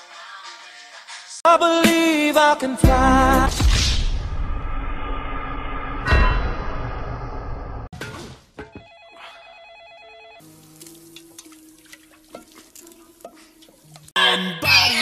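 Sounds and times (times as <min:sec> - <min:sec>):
loud music: 0:01.5 - 0:03.8
electronic telephone ring: 0:08.8 - 0:10.5.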